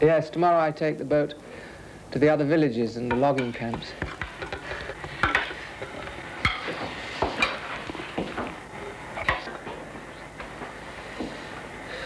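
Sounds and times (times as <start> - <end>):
faint steady hiss: 0.0 - 12.0
cutlery clinking on a plate: 3.1 - 7.6.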